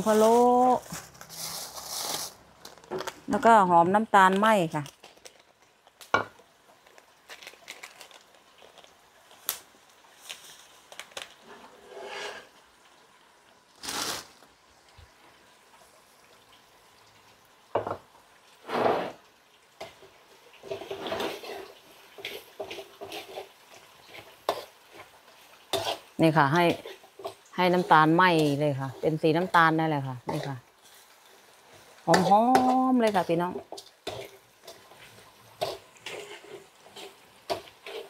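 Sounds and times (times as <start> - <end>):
faint cooking sizzle: 0.0 - 38.0
knocks and scrapes: 11.5 - 12.5
metal spatula stirring in wok: 19.8 - 38.0.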